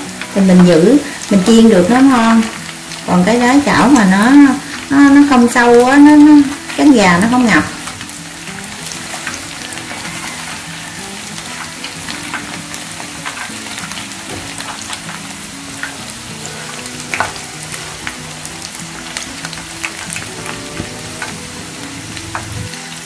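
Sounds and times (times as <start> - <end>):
chicken deep-frying in oil: 0.0 - 23.0.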